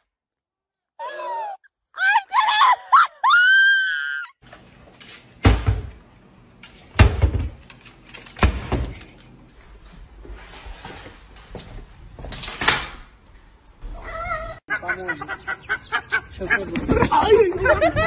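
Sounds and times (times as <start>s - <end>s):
cabinet doors banging shut: 5.4s - 5.9s, 7.0s - 7.6s.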